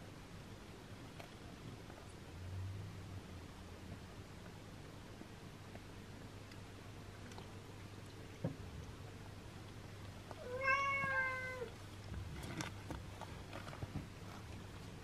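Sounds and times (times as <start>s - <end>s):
kitten meowing: 10.4s - 11.7s.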